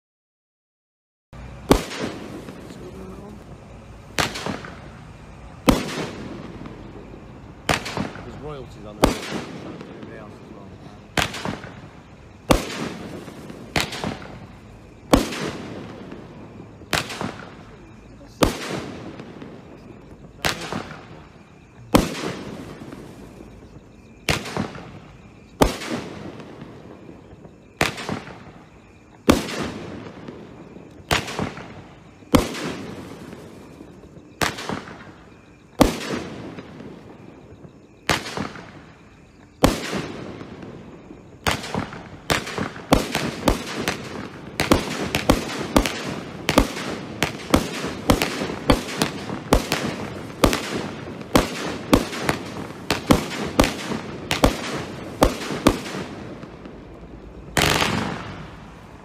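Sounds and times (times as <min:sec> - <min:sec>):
roman candle shots: 0:01.4 - 0:59.0.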